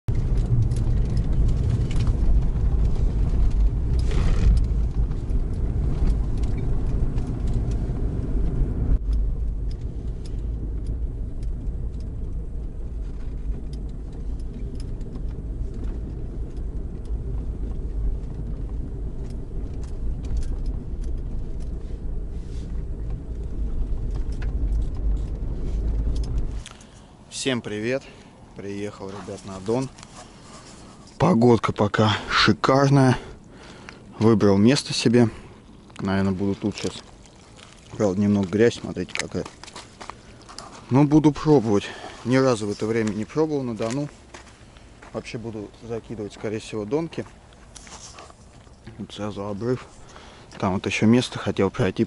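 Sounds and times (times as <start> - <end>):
car rumbling on dirt track: 0.1 - 26.8.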